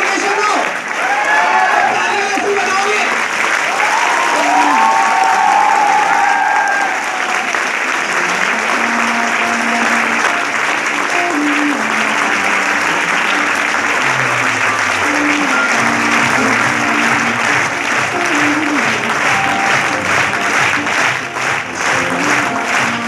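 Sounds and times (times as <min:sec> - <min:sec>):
crowd applauding: 0:00.0 - 0:23.0
background music with held notes: 0:07.2 - 0:23.0.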